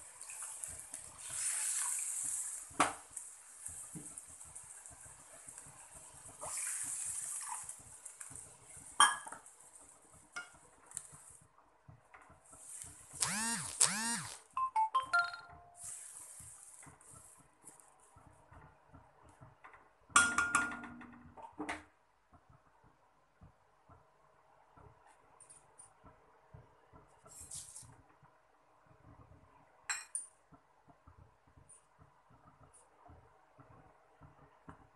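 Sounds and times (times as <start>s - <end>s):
food sizzling in a pan: 0.0s - 11.4s, 15.8s - 17.4s.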